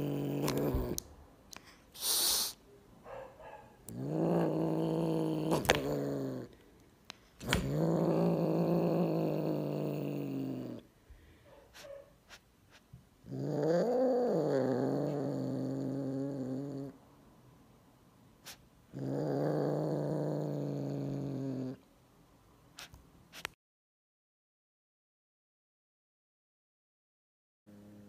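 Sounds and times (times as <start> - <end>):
kitten growling low: 0.0 - 1.1, 3.8 - 6.6, 7.4 - 10.9, 13.2 - 17.0, 18.5 - 21.8
kitten hissing: 1.6 - 2.6, 18.4 - 18.7, 22.8 - 23.6.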